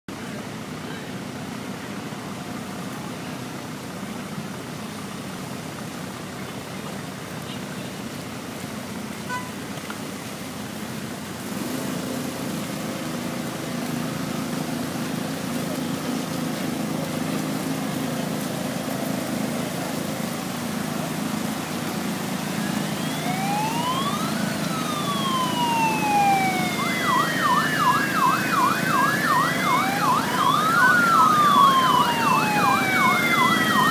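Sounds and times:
low rumble of vehicles: 0.1 - 33.9
emergency vehicle siren: 14.1 - 33.9.

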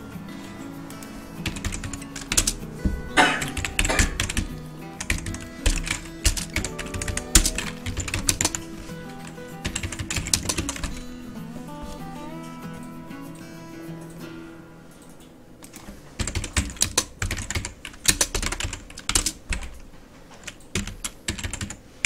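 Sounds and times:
background music: 0.0 - 18.2
computer keyboard typing: 1.4 - 11.0, 15.0 - 19.8, 20.4 - 21.9.

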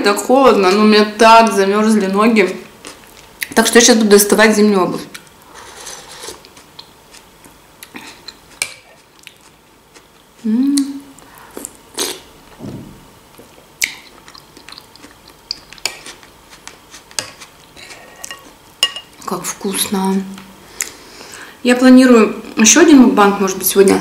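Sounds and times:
soft eating sounds: 2.0 - 4.3, 4.9 - 12.6, 13.2 - 21.6
metal spoon clinking on glass bowl: 18.3 - 19.1.

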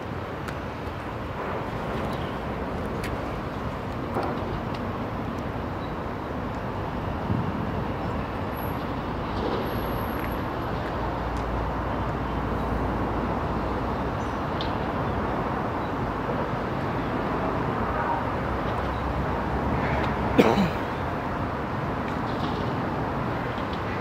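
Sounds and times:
distant train rumbling on tracks: 0.0 - 24.0.

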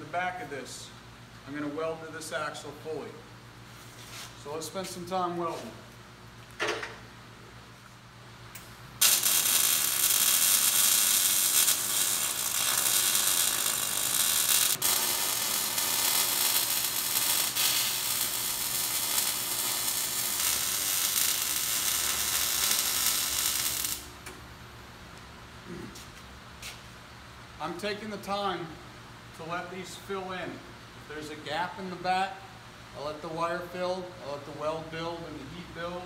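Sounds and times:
welding arc crackling hiss: 8.5 - 24.4.

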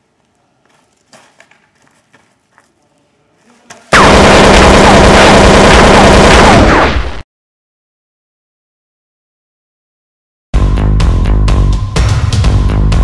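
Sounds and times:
faint scuffs and clicks: 0.1 - 3.9
loud distorted explosions: 3.9 - 7.2.

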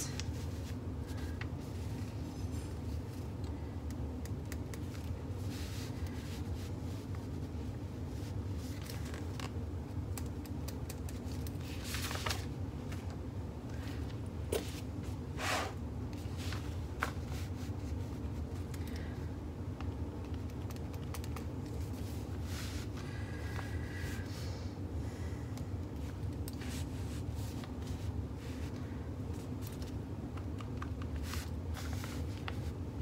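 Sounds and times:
low room hum: 0.0 - 33.0
paper and fabric rustling: 4.8 - 9.6, 11.0 - 13.2, 16.1 - 18.7, 31.0 - 33.0.

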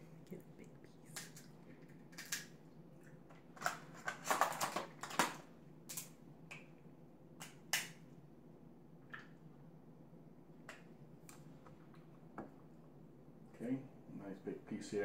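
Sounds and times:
crab shells cracking: 1.1 - 2.6.

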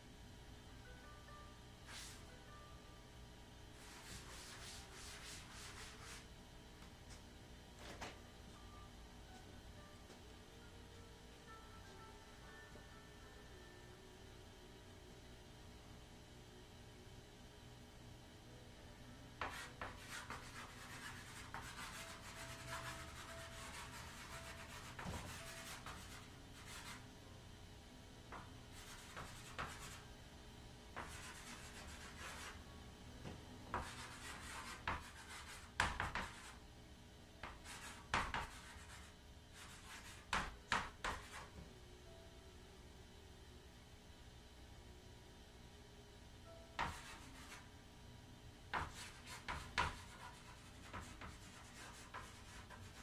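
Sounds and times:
chalk scratching on chalkboard: 3.8 - 6.3, 19.4 - 27.0, 28.8 - 30.0, 31.0 - 32.6, 33.7 - 36.6, 37.4 - 41.5, 46.8 - 47.7, 48.8 - 53.0.

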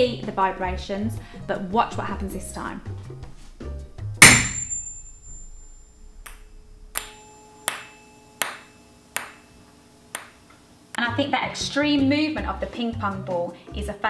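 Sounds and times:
tuning fork ringing: 4.2 - 9.9
ball clicking against tuning fork: 6.2 - 9.4.

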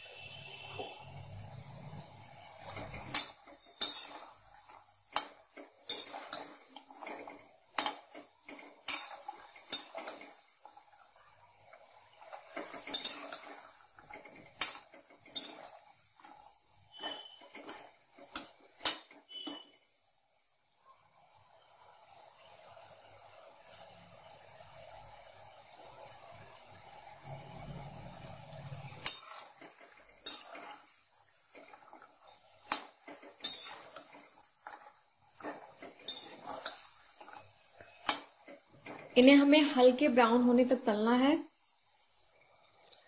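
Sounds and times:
dough sizzling in hot oil: 0.0 - 43.0
metal skimmer clinking against pan: 3.0 - 4.2, 32.7 - 33.8, 36.0 - 36.4.

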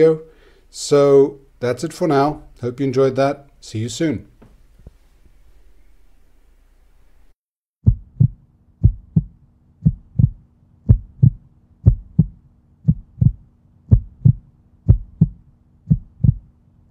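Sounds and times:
heartbeat thumps: 7.8 - 16.5
steady low hum: 7.9 - 16.8.

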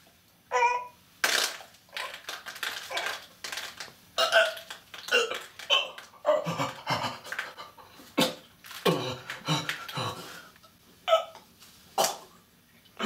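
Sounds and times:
man gagging and retching: 4.2 - 10.5.

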